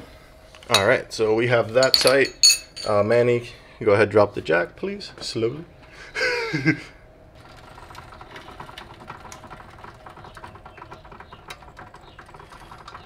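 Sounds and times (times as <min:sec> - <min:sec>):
jack fast fine clicking: 0:07.4 - 0:13.0.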